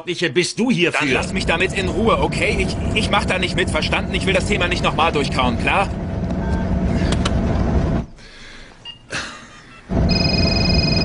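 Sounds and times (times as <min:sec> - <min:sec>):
vehicle engine and road rumble: 0:01.1 - 0:08.2, 0:09.9 - 0:11.0
car phone electronic ring: 0:10.1 - 0:11.0.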